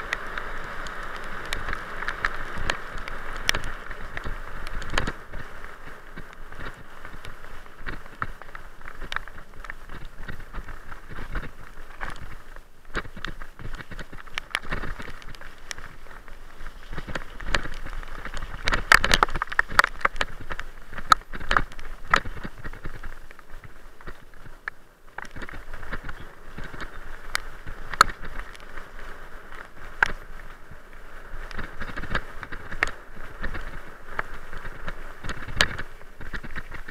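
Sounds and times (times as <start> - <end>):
wind and ground noise hiss: 0.0 - 36.9
camera rattling and knocking: 6.1 - 16.2, 16.8 - 24.2.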